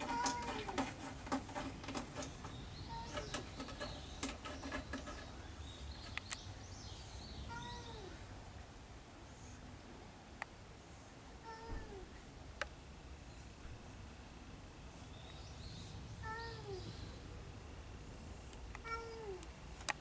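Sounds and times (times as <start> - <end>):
cat meowing: 7.5 - 8.2, 18.8 - 19.4.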